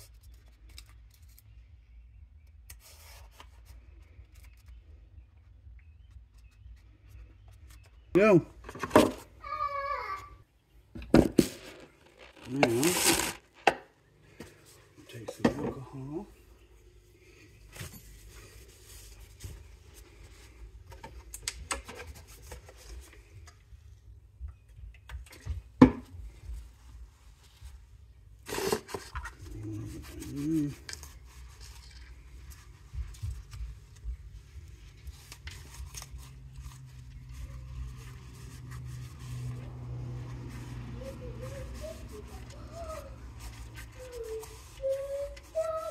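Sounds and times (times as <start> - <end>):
cloth rubbing and tape rustling: 11.2 - 13.7, 15.8 - 20.9, 26.3 - 45.9.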